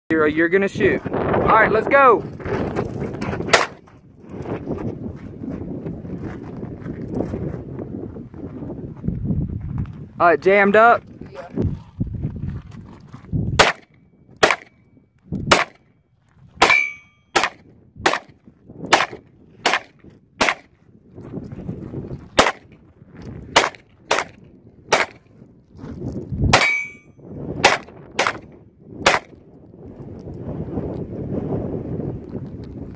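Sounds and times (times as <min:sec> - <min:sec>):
pistol shots: 0:03.5 - 0:03.8, 0:13.6 - 0:14.7, 0:15.5 - 0:15.8, 0:16.6 - 0:18.3, 0:18.9 - 0:20.7, 0:22.4 - 0:22.6, 0:23.5 - 0:25.2, 0:26.5 - 0:27.0, 0:27.6 - 0:28.4, 0:29.0 - 0:29.3.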